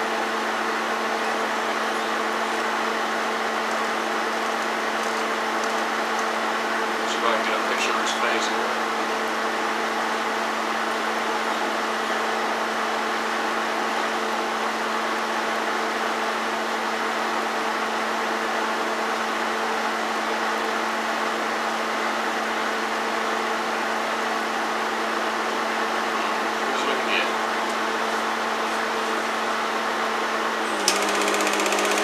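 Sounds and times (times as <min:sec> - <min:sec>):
projector mechanical whir: 0:00.0 - 0:32.0.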